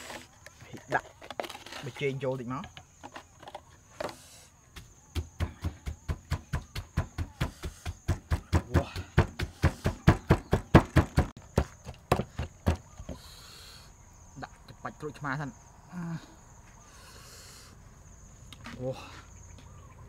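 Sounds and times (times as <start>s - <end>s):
wooden pestle pounding in mortar: 4.8s - 13.1s.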